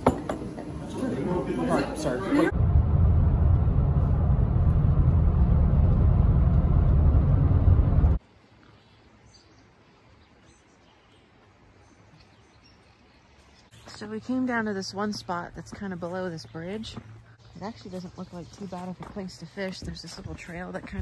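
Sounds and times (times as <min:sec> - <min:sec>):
vehicle cabin road rumble: 0:02.5 - 0:08.2.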